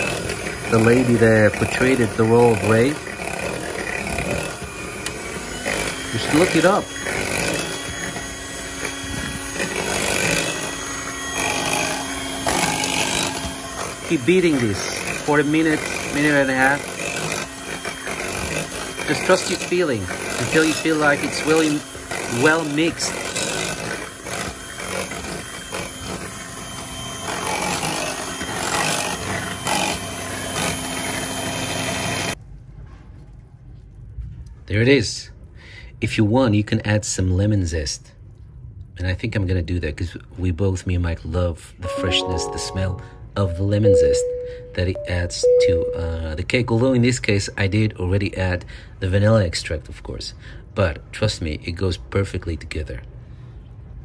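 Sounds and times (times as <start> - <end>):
electric hand mixer whisking batter: 0.0 - 32.4.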